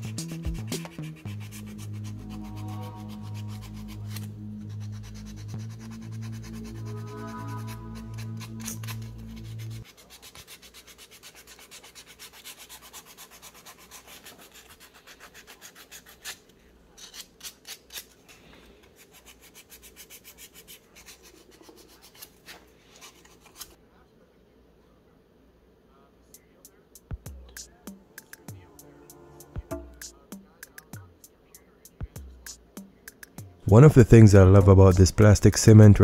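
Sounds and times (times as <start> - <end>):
background music: 0.0 - 9.8, 27.0 - 36.0
sandpaper rubbing on plastic: 0.0 - 16.4.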